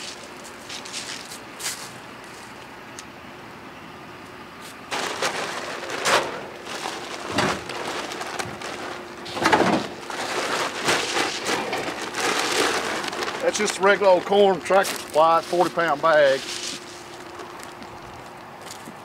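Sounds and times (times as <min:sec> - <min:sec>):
grain bags rustling: 0:04.9 - 0:18.9.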